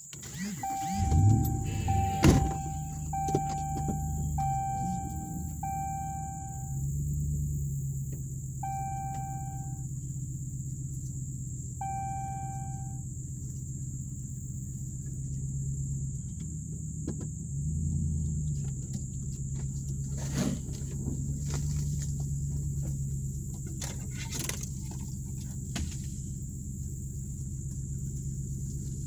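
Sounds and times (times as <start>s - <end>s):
insects droning: 0.0s - 29.0s
truck engine low rumble: 0.0s - 29.0s
short beep: 0.6s - 6.8s, 8.6s - 9.8s, 11.8s - 13.0s.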